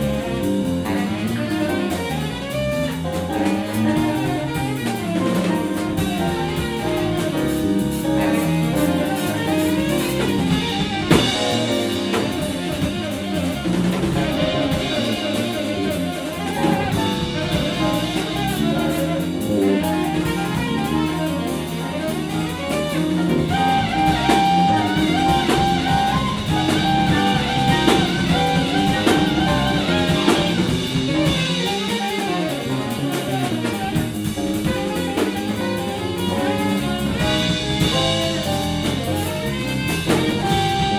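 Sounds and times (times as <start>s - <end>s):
jazz band playing: 0.0s - 40.9s.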